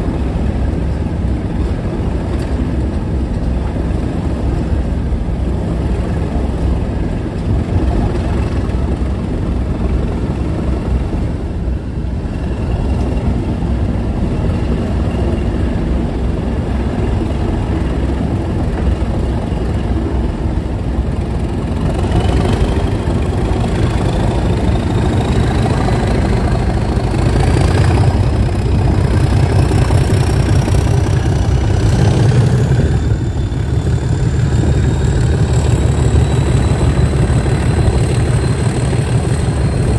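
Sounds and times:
diesel locomotive engine working: 0:00.0 - 0:39.9
high rising whistle: 0:24.6 - 0:39.9.

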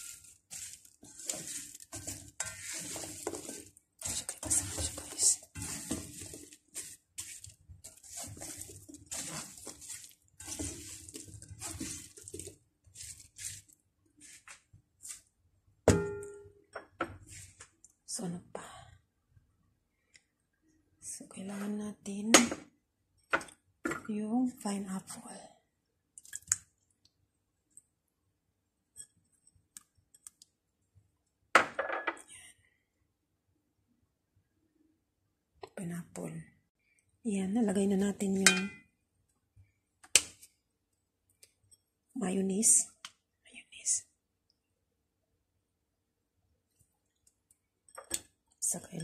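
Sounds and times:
spatula scraping food in pan: 0:00.0 - 0:15.2.

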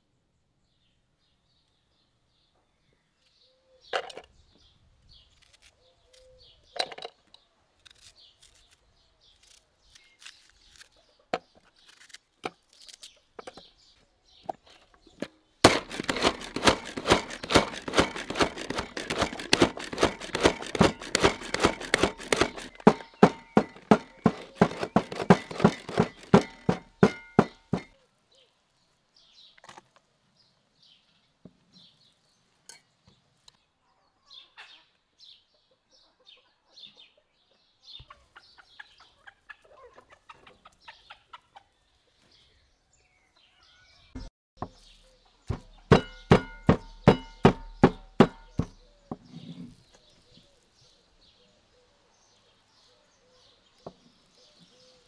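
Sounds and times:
food chopper clacking: 0:15.6 - 0:27.9, 0:45.5 - 0:48.7
scattered knocks: 0:15.6 - 0:27.9, 0:45.5 - 0:49.2.

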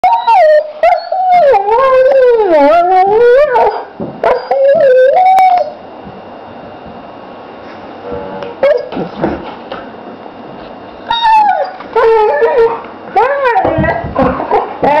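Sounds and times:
dog howling whine: 0:00.0 - 0:05.8, 0:11.1 - 0:15.0.

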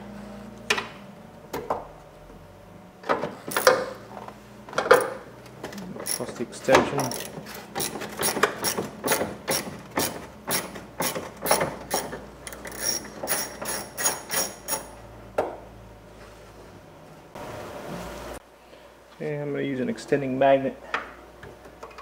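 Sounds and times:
hand ratchet clicking: 0:07.0 - 0:14.9.

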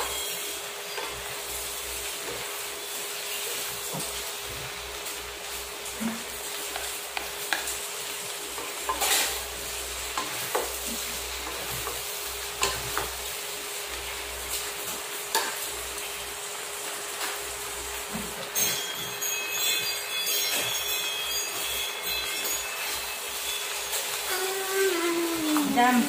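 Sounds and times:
utensils clinking against pan: 0:00.0 - 0:01.4, 0:05.9 - 0:13.2, 0:14.5 - 0:15.7, 0:18.1 - 0:24.5
meat sizzling in a wok: 0:00.0 - 0:26.0
utensils scraping a pan: 0:08.6 - 0:09.5.

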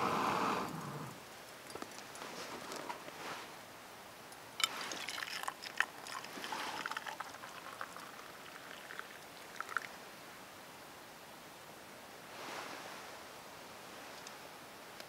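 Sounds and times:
water pouring into metal cup: 0:04.6 - 0:10.0.

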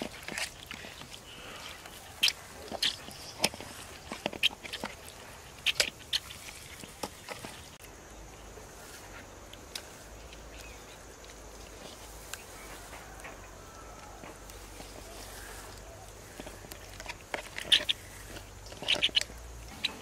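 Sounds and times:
hand squishing fish in marinade: 0:00.0 - 0:07.8.

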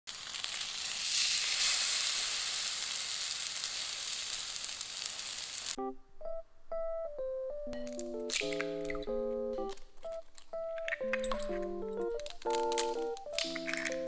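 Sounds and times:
bread sizzling in a frying pan: 0:00.1 - 0:05.8
piano notes: 0:05.8 - 0:14.0.

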